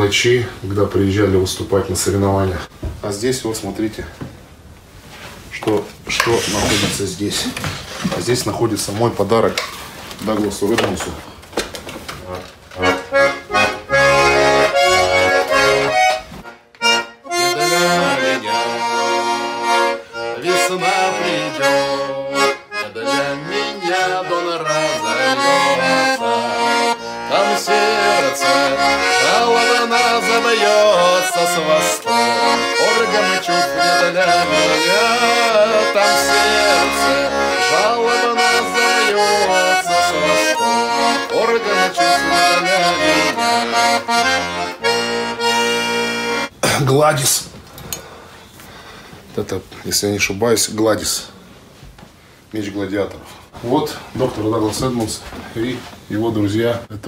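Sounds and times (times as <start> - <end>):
accordion music: 6.0 - 9.6, 12.0 - 46.6.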